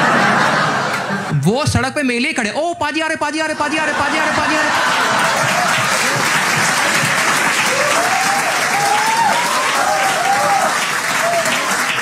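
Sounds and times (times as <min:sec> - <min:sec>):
audience laughing: 0:00.0 - 0:01.5, 0:03.3 - 0:07.6
audience applauding: 0:04.0 - 0:12.0.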